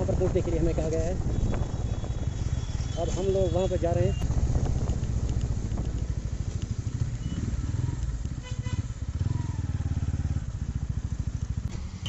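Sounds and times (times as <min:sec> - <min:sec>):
wind rumble on microphone: 0:00.0 - 0:08.4
motorcycle engine running: 0:04.2 - 0:12.0.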